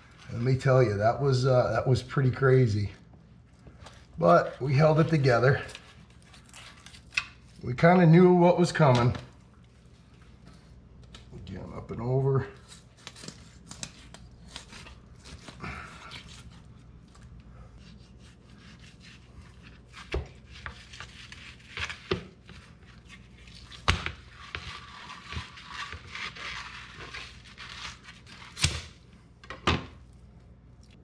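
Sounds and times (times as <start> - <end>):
knife slicing and scraping fish: 3.8 - 7.6, 12.6 - 16.9, 17.8 - 28.9.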